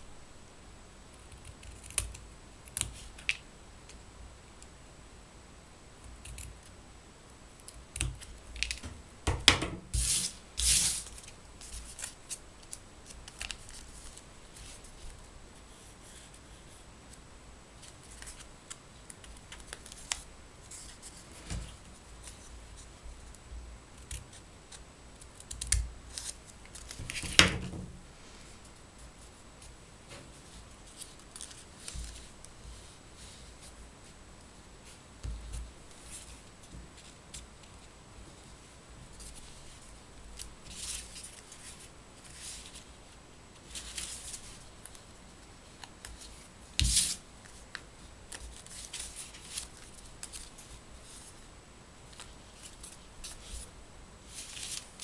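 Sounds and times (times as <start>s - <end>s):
paper rustling and creasing: 9.9s - 16.8s, 29.2s - 33.8s, 43.6s - 45.0s, 45.8s - 51.4s, 52.1s - 53.7s, 54.3s - 55.0s.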